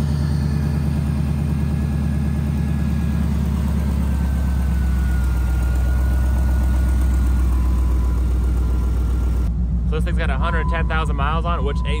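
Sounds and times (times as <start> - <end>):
truck engine idling: 0.0 - 12.0
faint high whine: 7.4 - 12.0.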